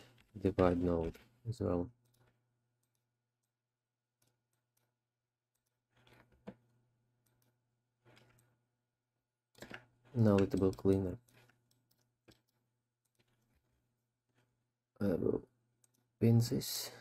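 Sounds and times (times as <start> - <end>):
computer mouse clicks: 2.0 - 3.6, 9.5 - 13.7.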